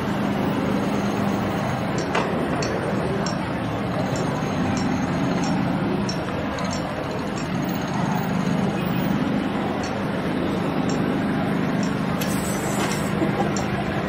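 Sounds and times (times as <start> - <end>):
city traffic noise: 0.0 - 14.0.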